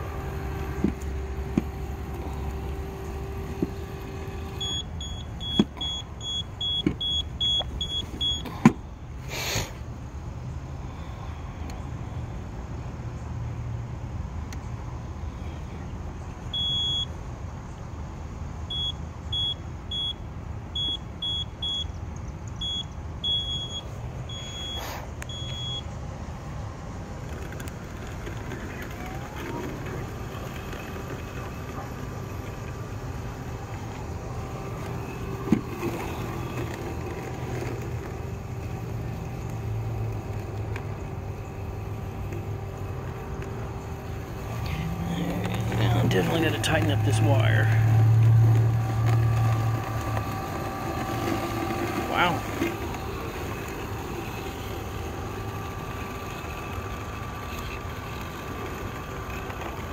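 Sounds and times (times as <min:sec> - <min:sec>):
robotic lawn mower motor hum: 0:00.0 - 0:08.6, 0:27.0 - 0:59.9.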